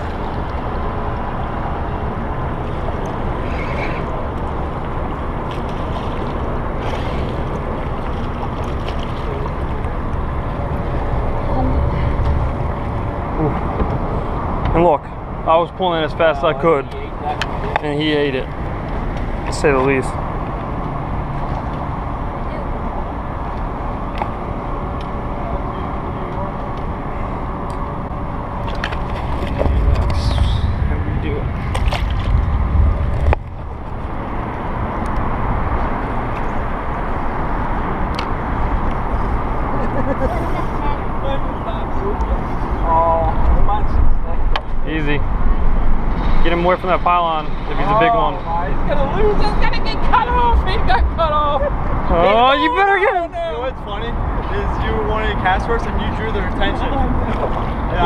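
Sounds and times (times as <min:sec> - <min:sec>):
water rushing around boat: 0:00.0 - 0:58.0
wind rushing: 0:29.2 - 0:36.2.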